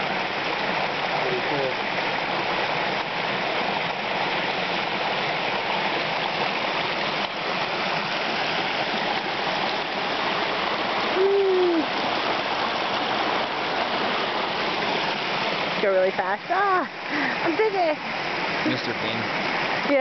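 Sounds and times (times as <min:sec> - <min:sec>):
waterfall splashing: 0:00.0 - 0:20.0.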